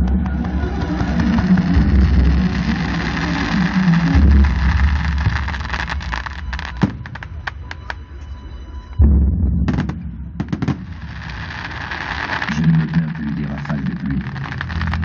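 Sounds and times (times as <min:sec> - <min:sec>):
firework booms: 0:00.0 - 0:08.0, 0:09.1 - 0:15.0
firework crackling pops: 0:00.0 - 0:08.0, 0:09.7 - 0:15.0.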